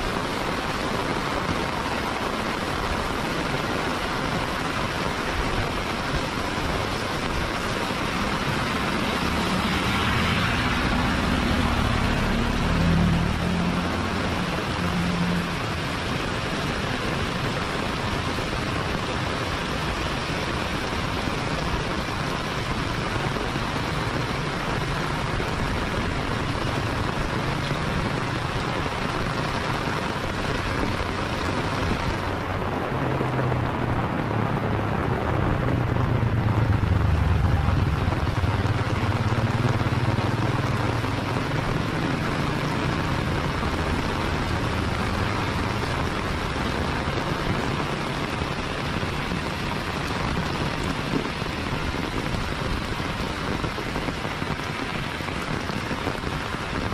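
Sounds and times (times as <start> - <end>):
heavy rain on road: 0.0 - 56.9
car driving past: 8.5 - 15.8, 33.0 - 43.8.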